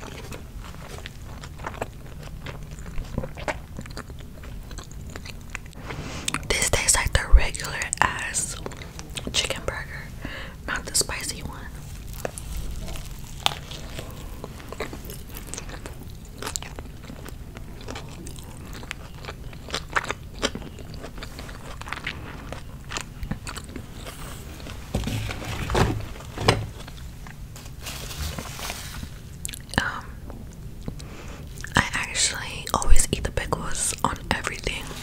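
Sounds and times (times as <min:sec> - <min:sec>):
crunchy chewing and biting: 0:00.0 - 0:06.5, 0:11.8 - 0:29.8.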